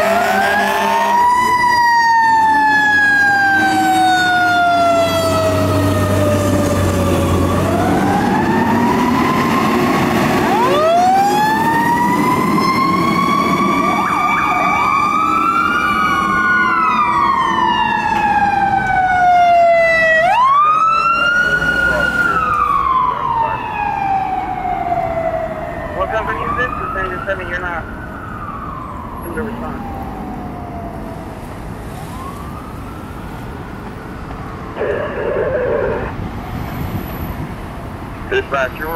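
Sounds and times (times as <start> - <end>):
fire truck sirens wailing: 0.0 - 38.9
heavy truck engine rumbling: 33.4 - 38.9.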